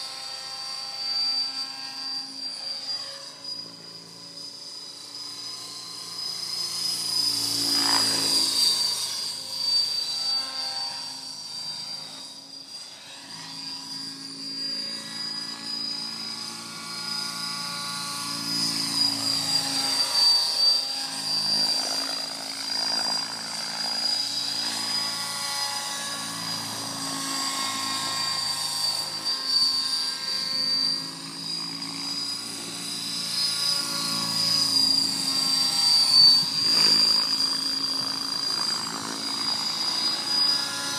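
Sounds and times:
model helicopter whine and rotor noise: 0.0 - 40.9.

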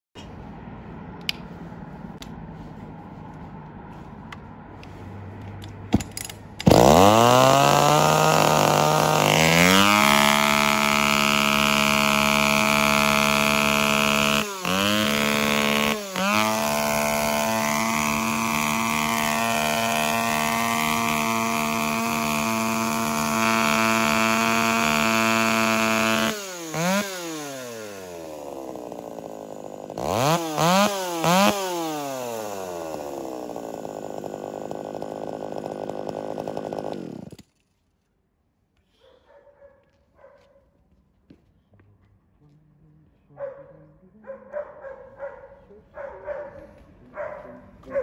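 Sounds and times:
chainsaw engine running: 6.0 - 37.6.

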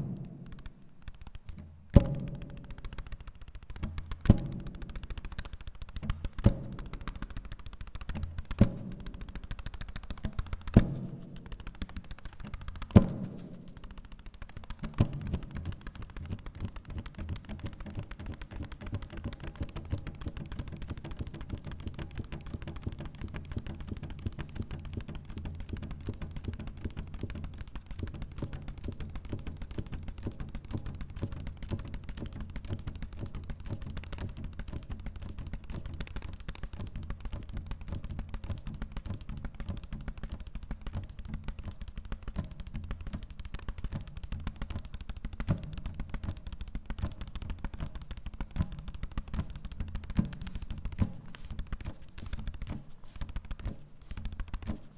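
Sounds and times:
paper rustling: 50.4 - 54.9.

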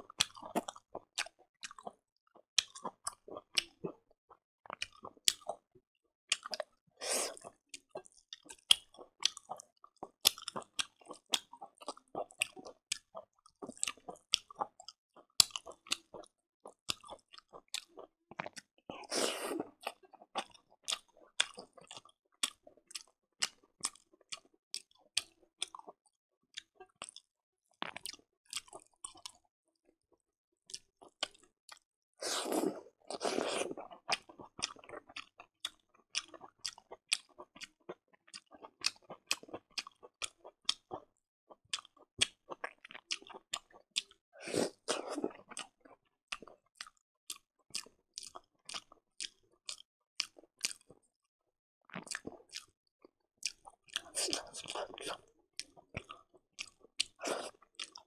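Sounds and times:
person chewing with wet smacks: 0.0 - 4.0, 4.6 - 5.6, 6.3 - 29.4, 30.7 - 51.0, 51.9 - 52.8, 53.4 - 58.0.

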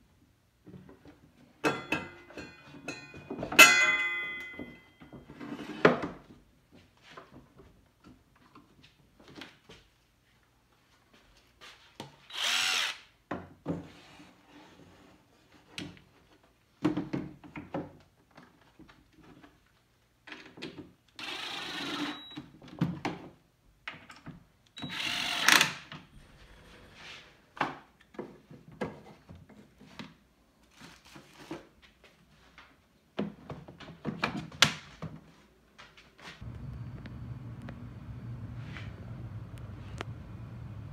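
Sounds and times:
cordless screwdriver driving screws: 12.3 - 13.0.

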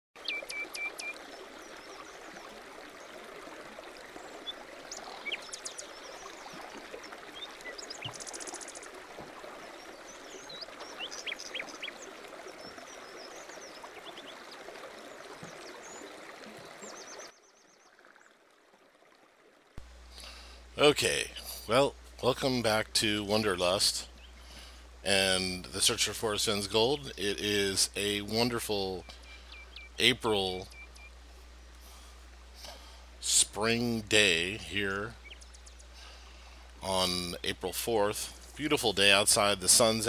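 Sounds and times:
small birds chirping: 0.2 - 2.3, 4.2 - 18.0, 23.6 - 25.5, 26.6 - 33.1, 34.3 - 37.6
shallow creek flowing: 0.2 - 40.0.

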